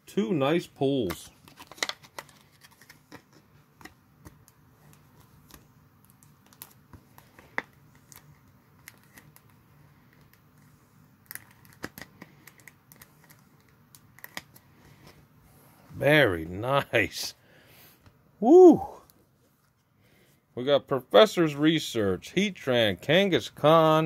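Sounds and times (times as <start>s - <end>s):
faint plastic clicks and handling: 1.0s - 15.2s.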